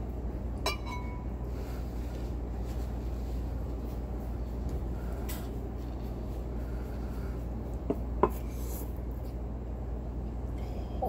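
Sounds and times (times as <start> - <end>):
low background hum: 0.0 - 11.0
tableware clinking: 0.6 - 1.3.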